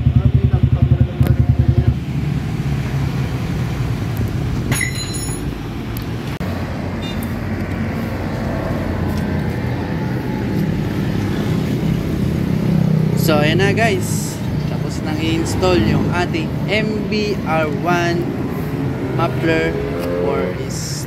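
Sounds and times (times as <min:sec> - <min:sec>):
motorcycle engine idling: 0:00.0 - 0:02.2
short metallic clink: 0:04.7 - 0:05.5.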